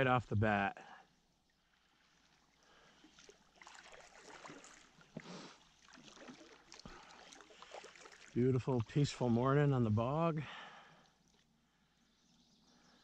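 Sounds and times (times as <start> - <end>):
kayak paddle dipping and dripping: 1.0 - 9.5, 10.5 - 12.4.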